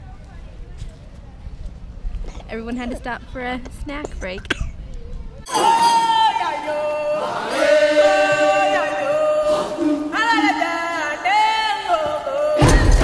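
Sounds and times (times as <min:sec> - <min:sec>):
voices chanting long held notes: 0:05.5 - 0:13.0.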